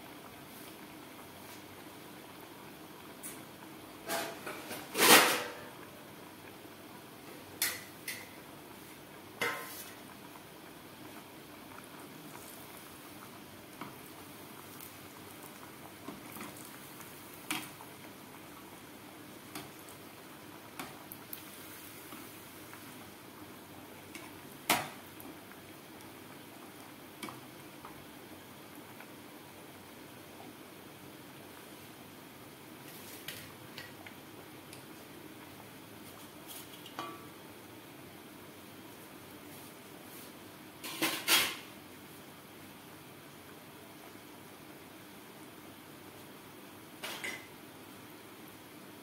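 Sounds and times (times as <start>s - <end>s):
food deep-frying in oil: 0.0s - 49.0s.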